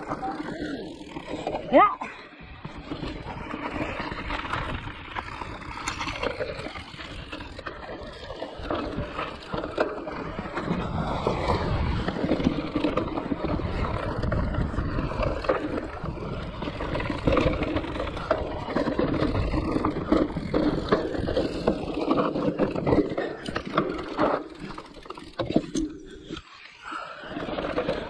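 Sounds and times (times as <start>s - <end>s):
bike rattling: 0.0s - 28.0s
tyres rolling over roots and stones: 0.0s - 28.0s
wind rumbling on microphone: 2.4s - 24.2s.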